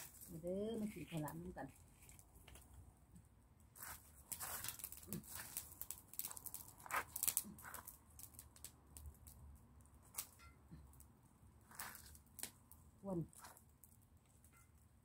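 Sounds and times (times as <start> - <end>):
sticks and embers shifted: 0.0 - 2.9, 3.6 - 15.0
wood fire crackling: 0.0 - 15.0
sharp snaps and clicks: 4.3 - 9.4.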